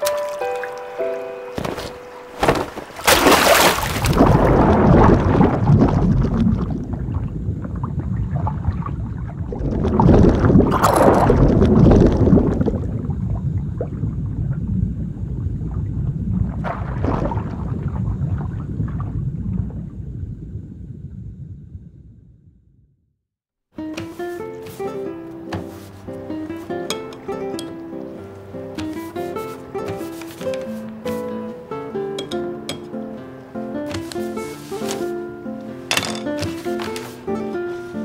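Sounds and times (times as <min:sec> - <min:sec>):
splash into water: 0:01.6 - 0:07.0, 0:08.3 - 0:13.0, 0:16.5 - 0:19.2
underwater rumble with bubbling: 0:03.5 - 0:22.9.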